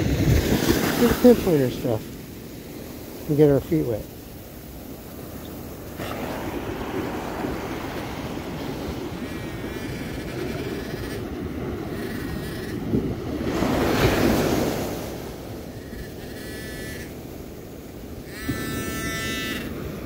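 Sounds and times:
wind noise on microphone: 0.0 - 2.0, 5.4 - 20.0
wave washing up the shore: 0.0 - 18.4
metal detector tones: 15.8 - 17.2, 18.2 - 19.8.

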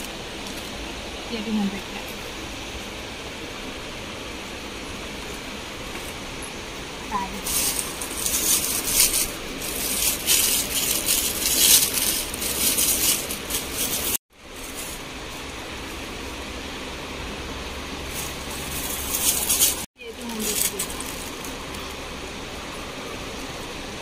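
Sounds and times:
background hum: 0.0 - 24.0
rustling handling noise: 5.0 - 16.5, 18.0 - 22.1.

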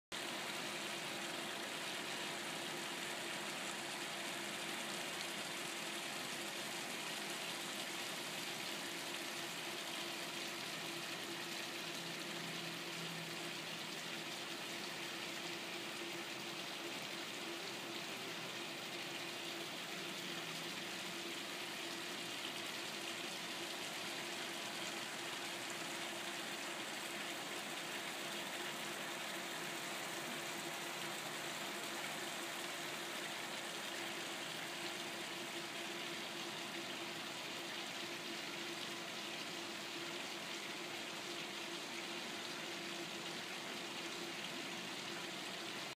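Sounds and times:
pump humming: 0.1 - 45.9
rushing water: 0.2 - 45.9.

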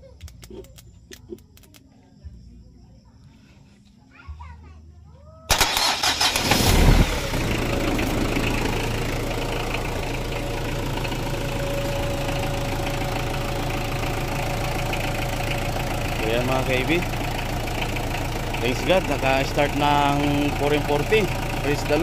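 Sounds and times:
diesel engine idling: 5.5 - 22.0
starter cranking engine: 5.5 - 22.0.

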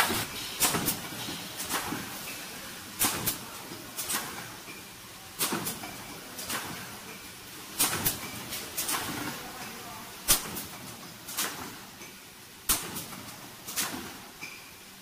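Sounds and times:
machine mechanical hum: 0.0 - 15.0.

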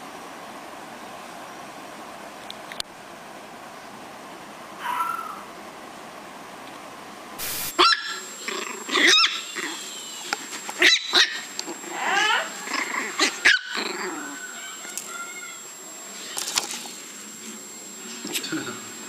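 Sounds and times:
puppy yapping and growling: 4.8 - 5.5, 7.7 - 15.6.

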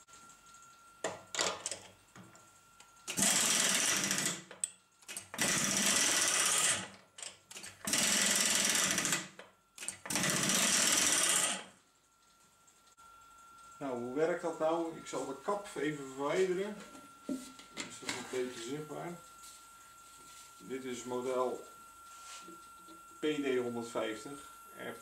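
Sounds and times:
air impact wrench rattling: 5.3 - 6.9, 7.8 - 9.2, 10.0 - 11.6.

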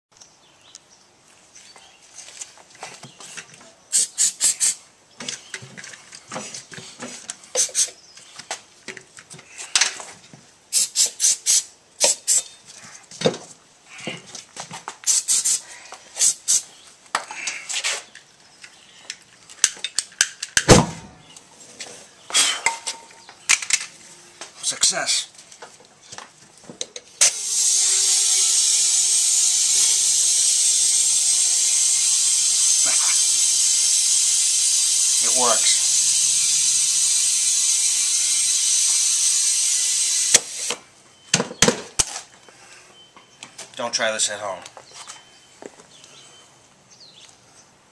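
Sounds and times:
aerosol spray hissing bursts: 3.9 - 4.8, 7.6 - 7.9, 10.7 - 12.4, 15.1 - 15.6, 16.2 - 16.7, 27.2 - 40.7
loud deep pop: 20.7 - 21.2.

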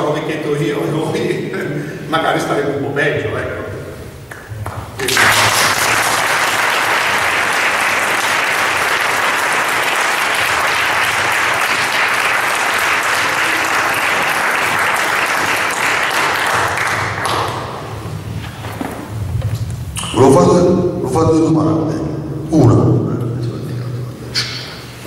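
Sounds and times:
people applauding: 4.3 - 18.1.

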